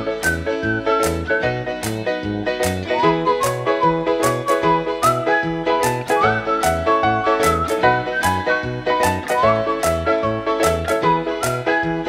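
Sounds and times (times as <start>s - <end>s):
whistled tune: 0.0s - 1.7s, 2.9s - 12.0s
bouncy bass line: 0.0s - 12.0s.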